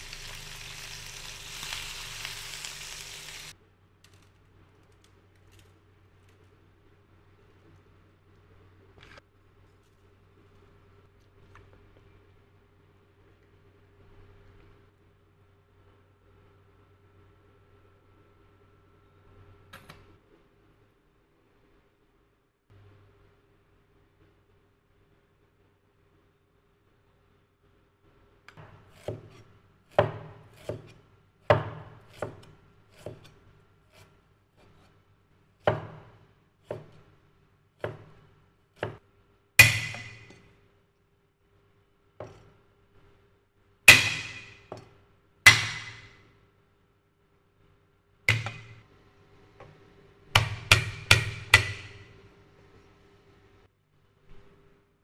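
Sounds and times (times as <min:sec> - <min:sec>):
cleaver chopping on wooden block: 0:28.6 - 0:30.9, 0:31.5 - 0:33.3, 0:39.6 - 0:40.4, 0:43.9 - 0:44.8, 0:45.5 - 0:46.2, 0:48.3 - 0:48.8, 0:50.4 - 0:52.0.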